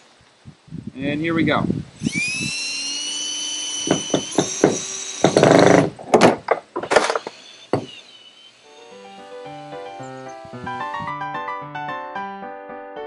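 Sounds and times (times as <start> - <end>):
drill driving screw into metal: 2.0 - 10.4
sharp knocks: 3.8 - 8.0
piano music: 8.7 - 13.0.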